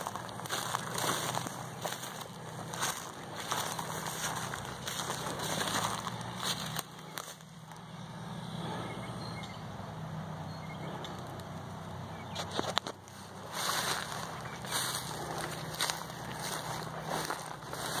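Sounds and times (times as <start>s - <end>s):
footsteps through dry grass: 0.0s - 7.9s, 12.3s - 18.0s
steady low hum: 0.0s - 18.0s.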